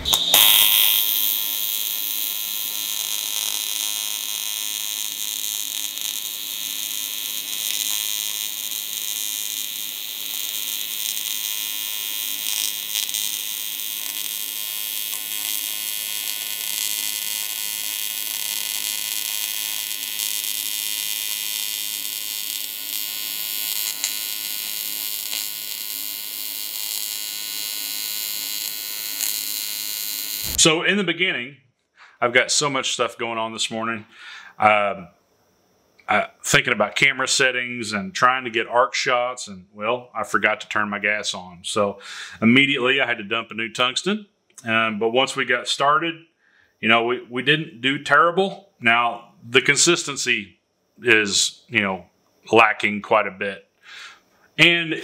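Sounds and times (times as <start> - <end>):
welding arc buzzing hiss: 0.0 - 30.8.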